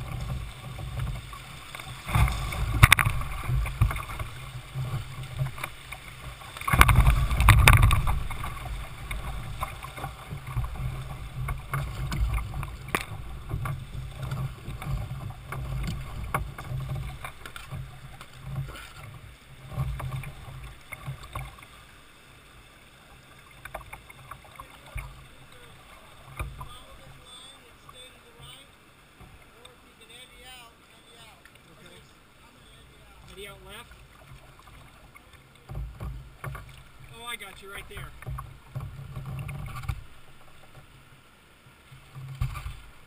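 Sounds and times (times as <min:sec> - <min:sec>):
paddle splashes and drips: 0:00.0 - 0:43.0
river water splashing and rushing: 0:00.0 - 0:43.0.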